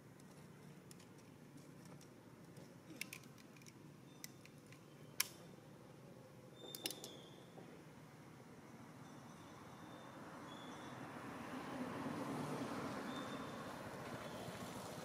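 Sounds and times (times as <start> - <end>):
sharp clicks: 2.9 - 5.5.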